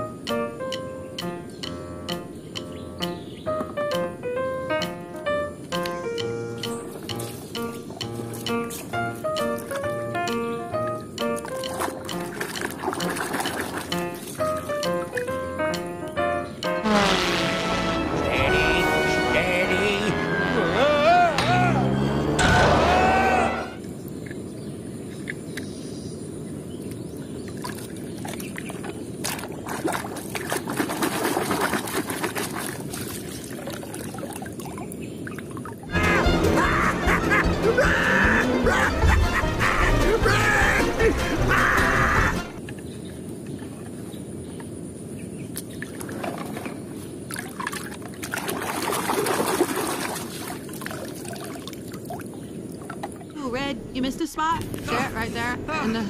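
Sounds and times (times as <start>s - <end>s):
water trickling and dripping: 4.8s - 16.2s, 26.8s - 35.9s, 45.5s - 53.6s
muddy water sloshing and splashing: 11.3s - 15.4s, 26.8s - 35.9s, 45.5s - 53.5s.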